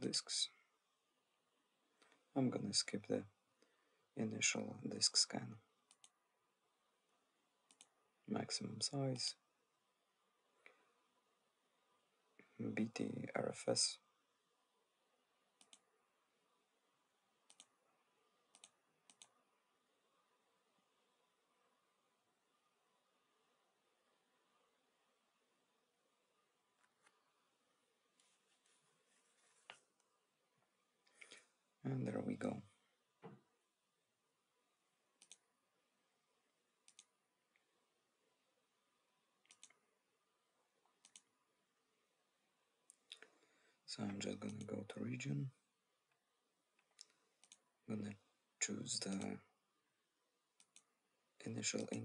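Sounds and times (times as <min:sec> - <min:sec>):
faint computer mouse clicks: 0:07.7 - 0:07.9, 0:15.6 - 0:15.8, 0:17.5 - 0:17.7, 0:18.5 - 0:19.4, 0:35.2 - 0:35.4, 0:36.9 - 0:37.1, 0:39.4 - 0:39.8, 0:41.0 - 0:41.3, 0:46.8 - 0:47.6, 0:50.6 - 0:50.9.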